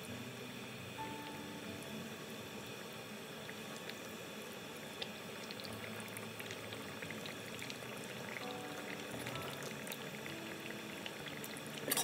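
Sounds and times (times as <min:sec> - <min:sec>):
curry bubbling with small pops: 0:02.4 - 0:12.0.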